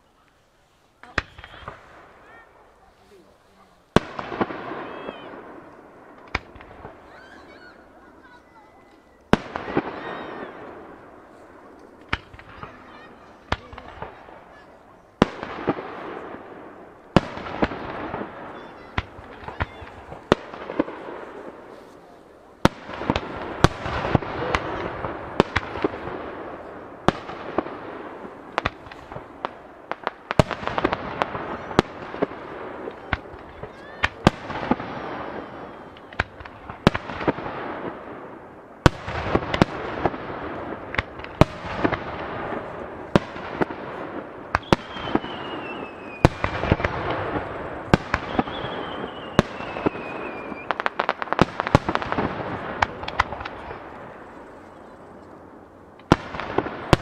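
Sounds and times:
firework crackle: 0.0s - 57.0s
firework bangs: 1.0s - 57.0s
high falling whistles: 44.8s - 46.3s, 48.3s - 50.8s.

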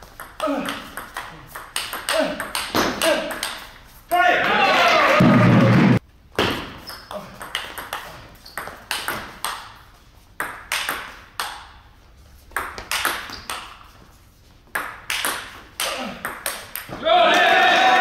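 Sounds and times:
ball clicking off rackets: 0.1s - 3.7s, 6.4s - 11.8s, 12.5s - 13.9s, 14.7s - 17.0s.

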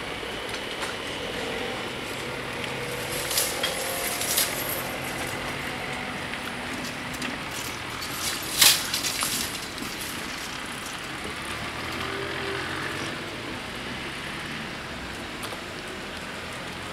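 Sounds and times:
road traffic tyre and engine noise: 0.0s - 16.9s
small rattles: 2.1s - 11.3s.

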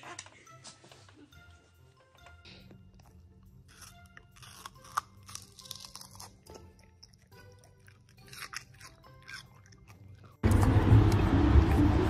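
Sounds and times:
dog chewing watermelon: 6.1s - 11.8s.

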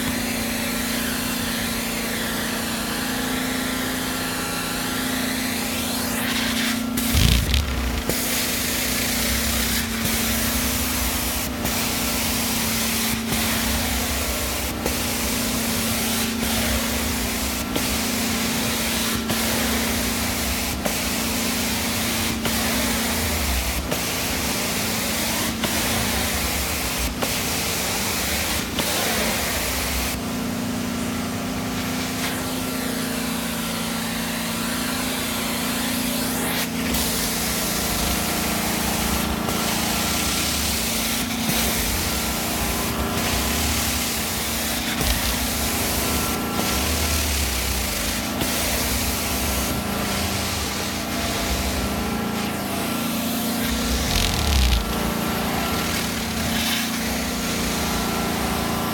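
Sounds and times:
carpet cleaner vacuum roar: 0.0s - 58.9s
spray hiss: 5.8s - 30.2s
constant hum: 7.1s - 11.7s.

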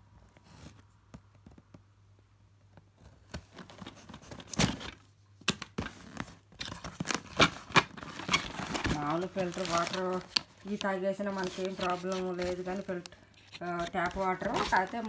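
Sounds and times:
cardboard rustling and scraping: 3.0s - 5.0s, 5.8s - 15.0s
tape tearing: 3.3s - 15.0s.

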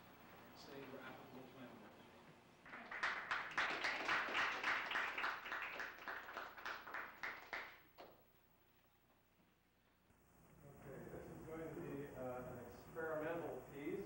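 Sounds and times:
audience applauding: 2.7s - 8.1s
single hand clap: 2.7s - 8.2s.

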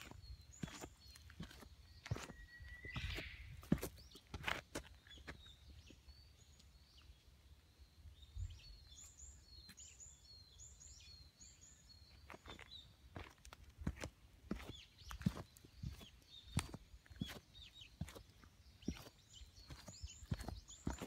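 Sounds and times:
footsteps on dirt trail: 0.0s - 6.0s, 12.1s - 21.0s
small bird chirping: 0.0s - 7.3s, 8.1s - 21.0s.

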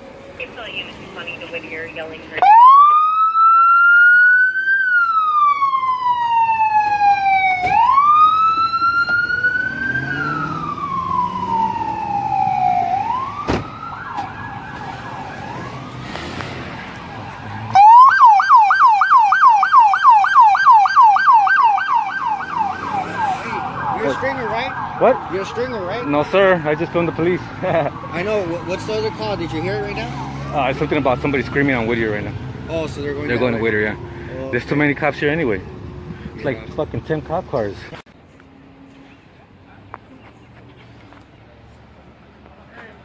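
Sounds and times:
police siren wailing and yelping: 0.5s - 16.2s, 16.9s - 32.3s.

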